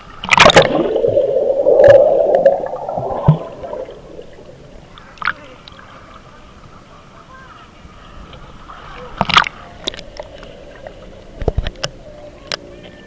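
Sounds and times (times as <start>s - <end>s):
underwater churning water and bubbles: 0.0s - 5.8s
swimmer splashing: 0.2s - 5.2s.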